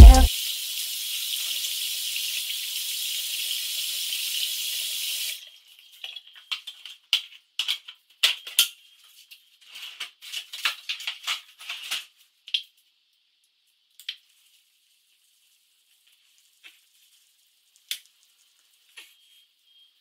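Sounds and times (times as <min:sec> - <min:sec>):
plastic items clicking on counter: 0:06.0 - 0:12.8.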